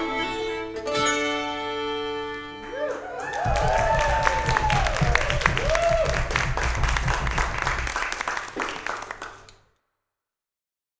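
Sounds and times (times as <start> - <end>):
people cheering: 2.6 - 9.5
audience applauding: 2.6 - 9.6.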